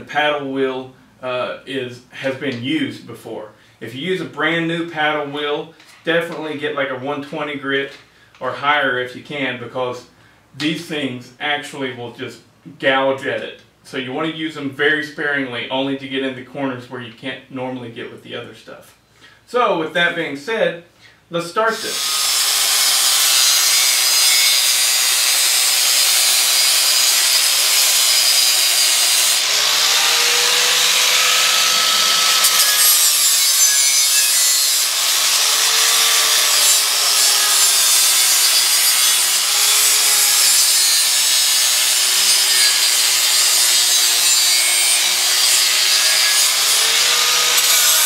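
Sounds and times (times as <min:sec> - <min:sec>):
angle grinder grinding metal: 0:21.8 - 0:48.0.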